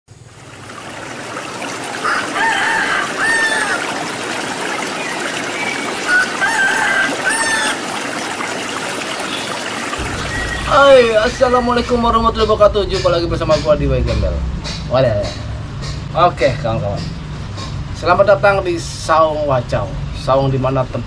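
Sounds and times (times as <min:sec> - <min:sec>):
trickle of running water: 0:00.1 - 0:11.6
rooster crowing: 0:02.0 - 0:04.0, 0:06.1 - 0:07.9.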